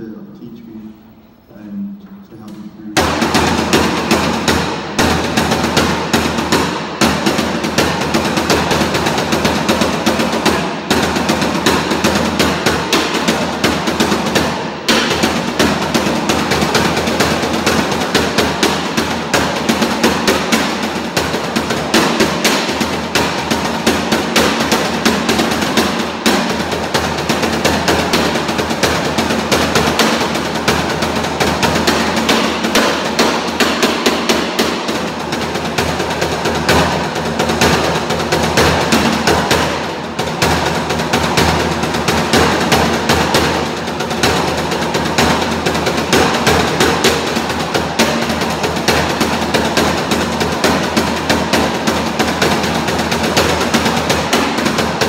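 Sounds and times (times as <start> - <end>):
steady low hum: 0.0 - 5.0
rapid percussive strikes: 0.0 - 55.0.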